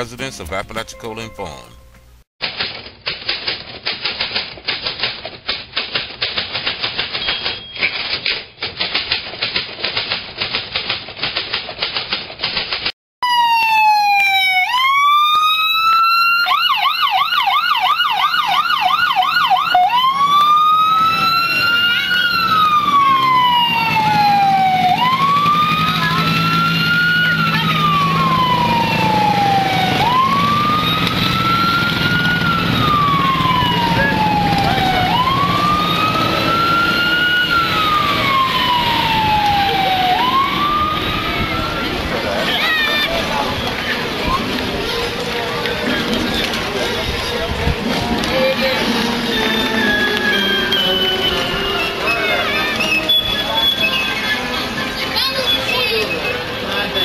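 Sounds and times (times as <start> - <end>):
typewriter keys clattering: 2.4 - 12.9
emergency vehicle siren: 13.2 - 57.0.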